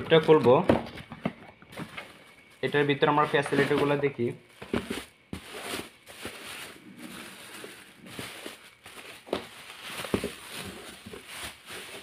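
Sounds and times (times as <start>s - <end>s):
plastic wrapping crinkling: 1.7s - 12.0s.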